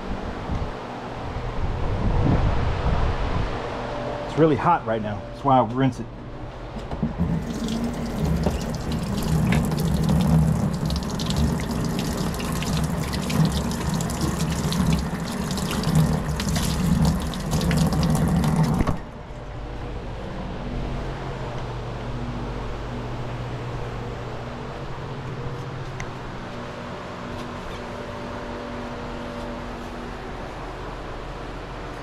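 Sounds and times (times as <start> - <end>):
water running from a tap: 7.2 - 19.0.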